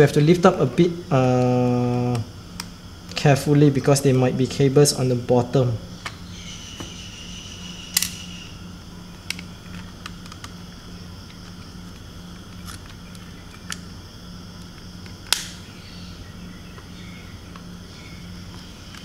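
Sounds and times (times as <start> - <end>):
plastic clicks and snaps: 9.2 - 10.6.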